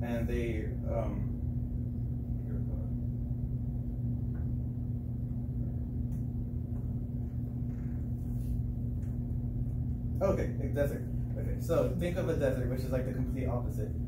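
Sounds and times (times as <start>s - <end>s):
faint rumble: 0.0s - 14.0s
steady low hum: 0.0s - 14.0s.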